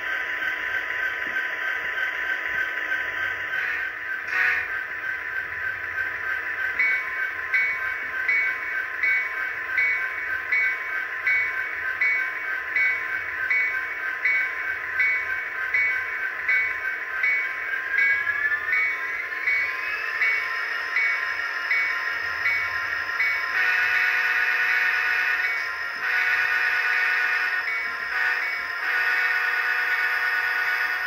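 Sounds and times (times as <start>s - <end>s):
model locomotive engine hum: 0.0s - 31.0s
locomotive bell ringing: 3.5s - 31.0s.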